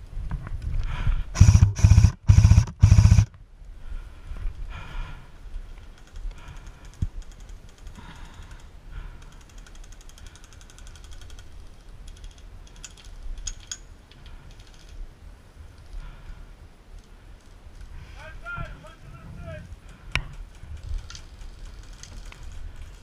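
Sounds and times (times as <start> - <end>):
airsoft guns firing bursts: 1.4 - 3.3.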